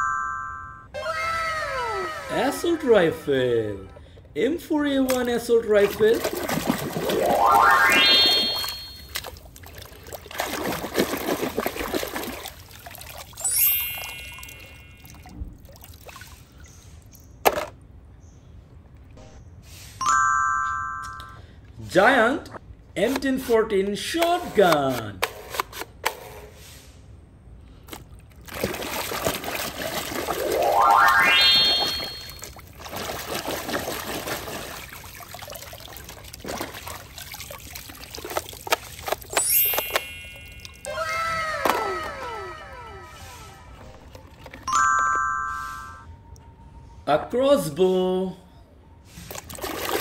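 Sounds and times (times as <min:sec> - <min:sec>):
ringing chime: 0:00.0 - 0:00.9, 0:08.1 - 0:09.1, 0:13.4 - 0:15.2, 0:20.0 - 0:21.4, 0:30.8 - 0:32.4, 0:39.4 - 0:40.9, 0:44.7 - 0:46.1
water trickling and splashing: 0:05.1 - 0:17.4, 0:27.9 - 0:31.1, 0:31.7 - 0:40.9, 0:43.8 - 0:44.8, 0:49.2 - 0:50.0
rising sweep sound effect: 0:07.2 - 0:09.0, 0:30.4 - 0:32.4.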